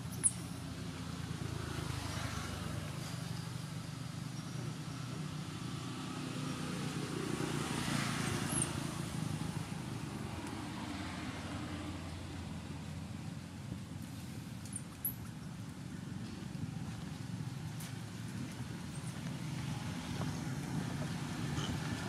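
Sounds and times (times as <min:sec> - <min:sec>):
traffic rumble: 0:00.0 - 0:22.0
vehicle passing: 0:05.6 - 0:13.1.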